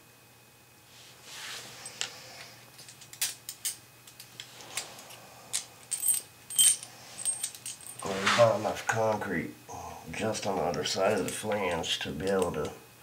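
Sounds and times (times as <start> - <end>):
hand tools clicking and tapping: 10.4 - 12.7.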